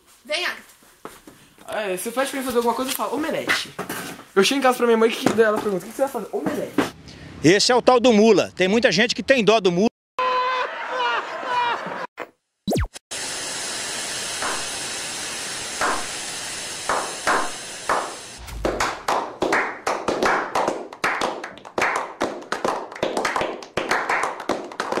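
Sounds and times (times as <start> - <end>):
steady hiss: 13.9 - 18.8
men clapping: 18.6 - 25.0.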